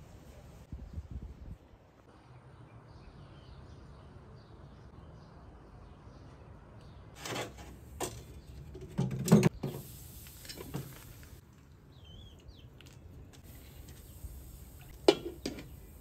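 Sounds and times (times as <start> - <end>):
metal pot and lid clinking: 15.0 - 15.7.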